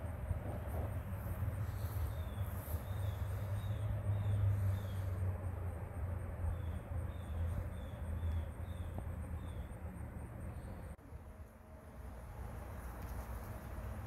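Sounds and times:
insect chirping: 0:00.0 - 0:11.0
steady low rumble: 0:00.0 - 0:14.0.

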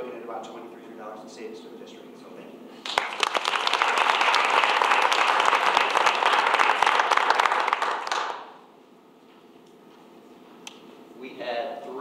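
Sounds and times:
people applauding: 0:02.8 - 0:08.6.

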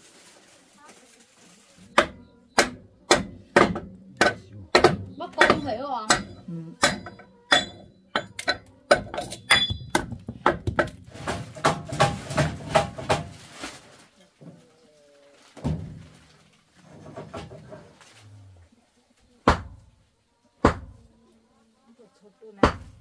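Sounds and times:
thump: 0:15.6 - 0:16.1.

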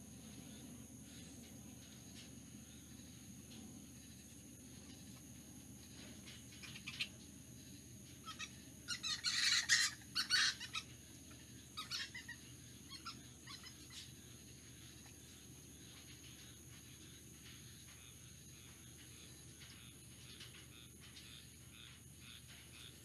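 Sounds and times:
fruit bats squawking: 0:06.6 - 0:07.1, 0:08.2 - 0:14.1.

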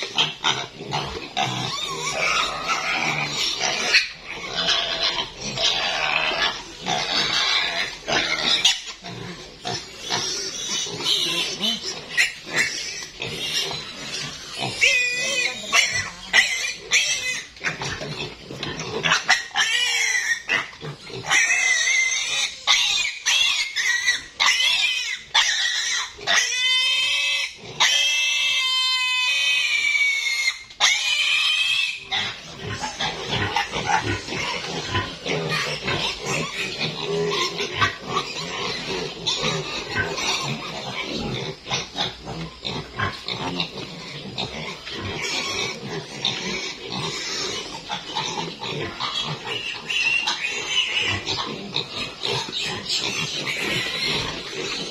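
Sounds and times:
piglets grunting: 0:00.0 - 0:54.9
piglets squealing shrilly: 0:00.0 - 0:54.9.

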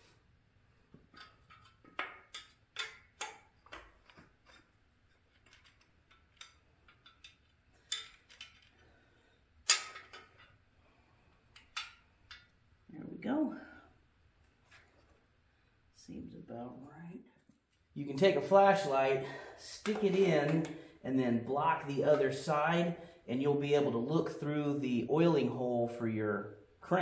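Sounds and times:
metal tools clinking and knocking: 0:01.0 - 0:08.8, 0:09.6 - 0:10.6, 0:11.5 - 0:12.5.

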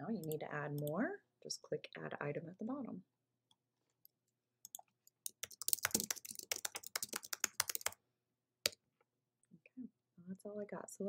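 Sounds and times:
typing on computer keyboard: 0:04.7 - 0:08.0.

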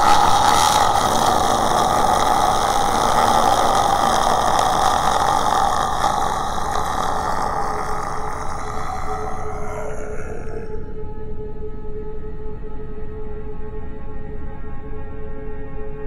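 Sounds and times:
rough ghostly drone: 0:00.0 - 0:11.4.

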